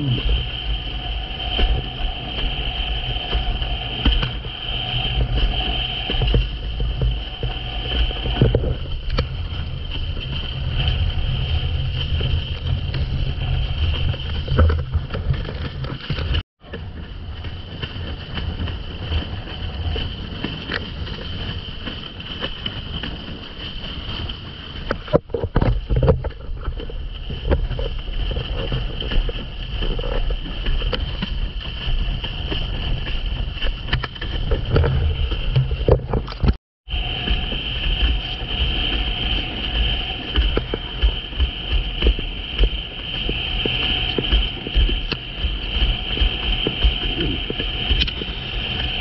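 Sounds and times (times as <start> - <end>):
water rushing and splashing: 0.0 - 49.0
wind buffeting microphone: 0.0 - 49.0
board slapping against waves: 28.7 - 49.0.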